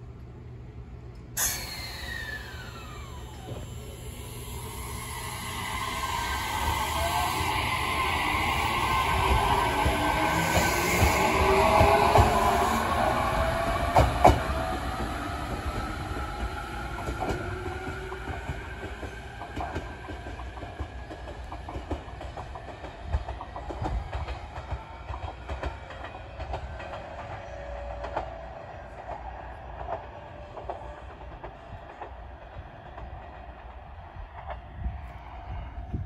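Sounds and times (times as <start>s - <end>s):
electric train motor whine: 1.4s - 18.8s.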